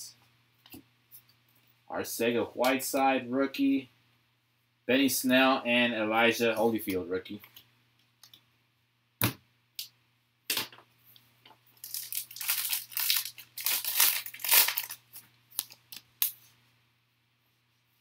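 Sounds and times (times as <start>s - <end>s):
foil pack crinkling: 11.8s - 16.3s.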